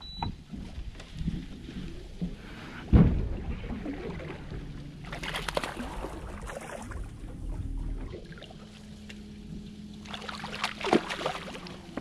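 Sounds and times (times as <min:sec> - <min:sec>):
water lapping at hull: 0:00.0 - 0:12.0
fish splashing at surface: 0:05.1 - 0:07.0, 0:10.1 - 0:11.7.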